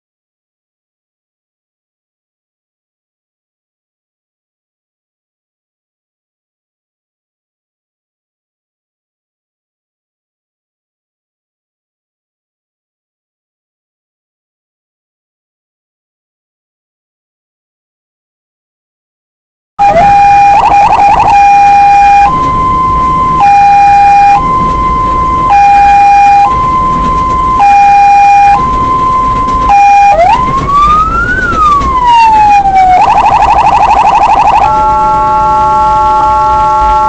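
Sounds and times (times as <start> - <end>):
emergency vehicle siren: 19.8 - 37.0
multi-tone vehicle horn: 34.5 - 37.0.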